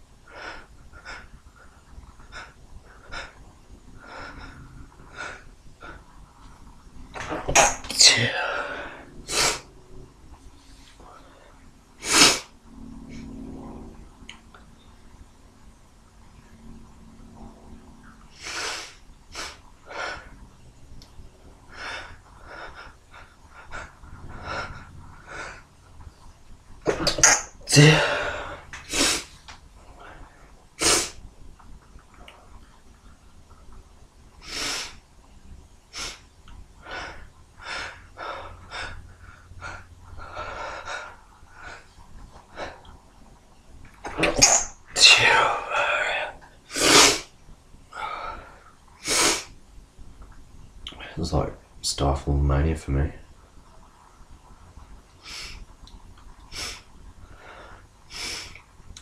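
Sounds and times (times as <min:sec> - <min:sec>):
man sneezing: 0:07.3 - 0:08.7, 0:26.9 - 0:28.4.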